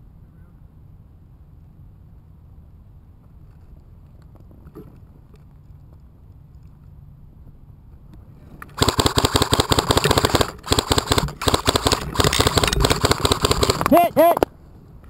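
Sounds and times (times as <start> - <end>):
airsoft gun full-auto bursts: 8.7 - 14.1.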